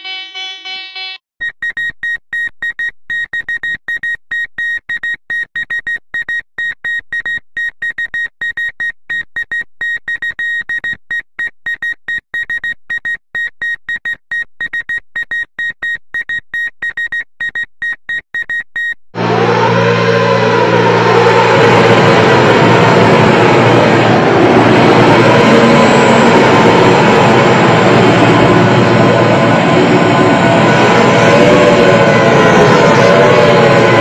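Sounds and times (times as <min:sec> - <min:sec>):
fast electronic tone melody: 0:00.0 - 0:04.1.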